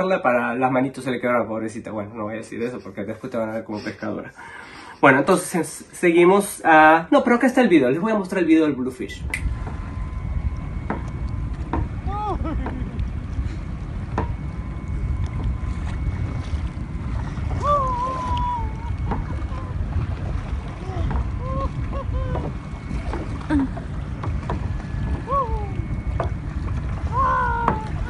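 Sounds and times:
wind buffeting microphone: 0:09.0 - 0:28.0.

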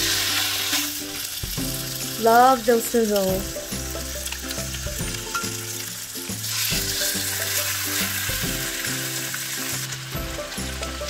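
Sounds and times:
chicken sizzling in oil: 0:00.0 - 0:11.0
light background music: 0:00.0 - 0:11.0.

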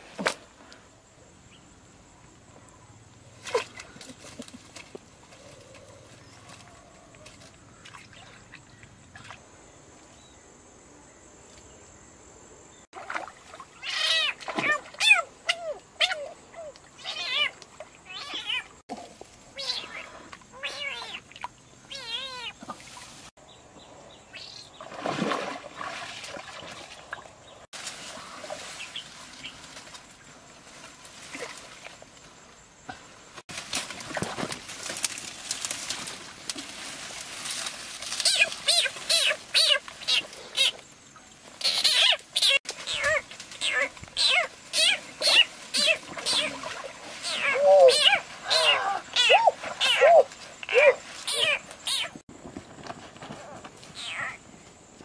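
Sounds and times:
rustling noise: 0:33.3 - 0:40.7, 0:49.7 - 0:54.0
small animal whining: 0:47.2 - 0:52.2.

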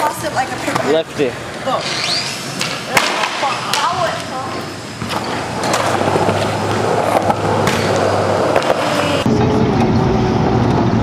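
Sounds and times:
skateboard wheels rolling on concrete: 0:02.4 - 0:11.0
car driving: 0:04.9 - 0:11.0.

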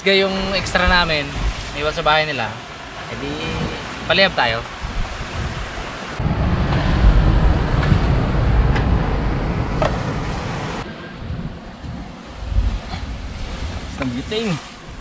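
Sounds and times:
wind buffeting microphone: 0:00.1 - 0:15.0.

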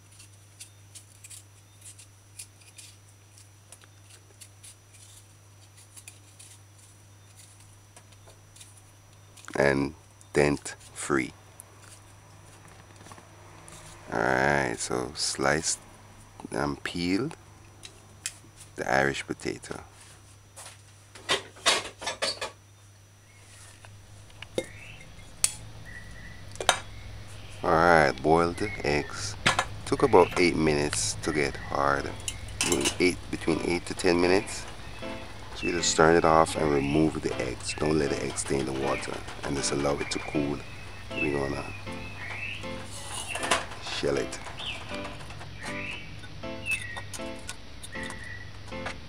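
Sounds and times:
knife scraping potato skin: 0:00.0 - 0:07.7, 0:42.8 - 0:43.4
steady low hum: 0:00.0 - 0:21.3, 0:22.6 - 0:49.0.

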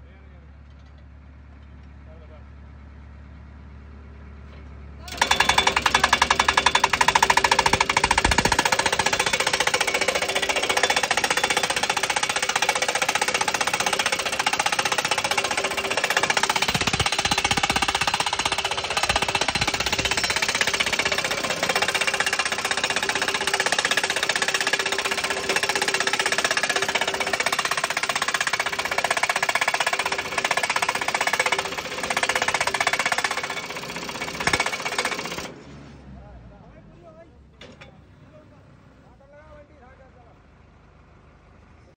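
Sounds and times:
tractor engine running: 0:05.0 - 0:35.6
post driver pounding: 0:05.1 - 0:35.5.

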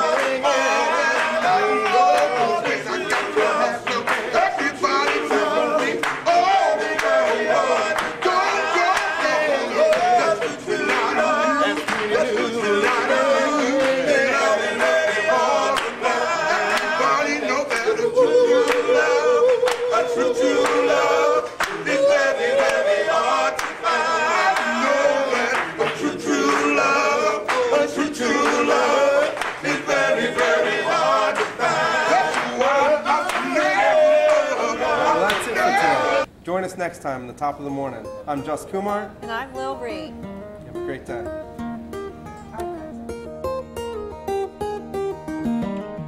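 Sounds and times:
male group singing a cappella: 0:00.0 - 0:36.3.

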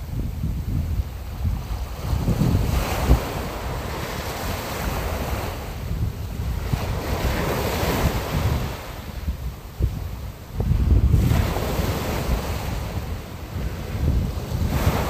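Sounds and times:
waves rushing: 0:00.0 - 0:15.0
wind rumbling on microphone: 0:00.0 - 0:15.0.

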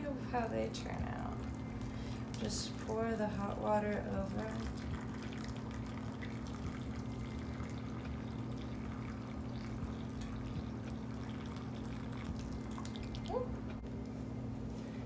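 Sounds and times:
low hum: 0:00.0 - 0:15.0
water pouring into tub: 0:04.4 - 0:13.3.

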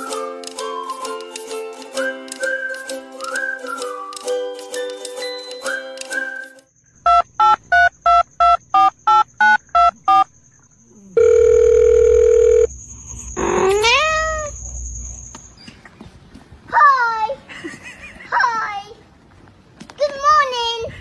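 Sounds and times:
telephone keypad beeps: 0:07.1 - 0:10.2
steady dial tone: 0:11.2 - 0:12.7.

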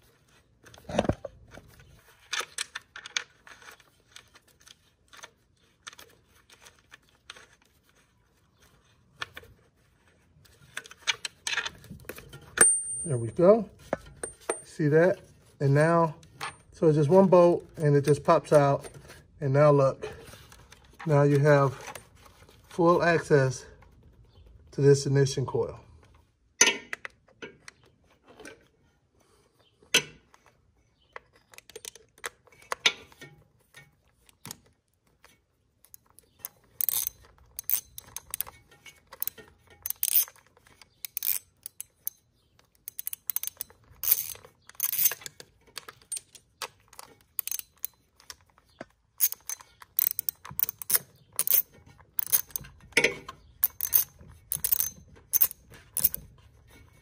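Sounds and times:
socket ratchet clicking: 0:36.8 - 0:40.4, 0:41.1 - 0:42.2, 0:42.8 - 0:48.4, 0:49.2 - 0:52.6, 0:53.6 - 0:56.2.

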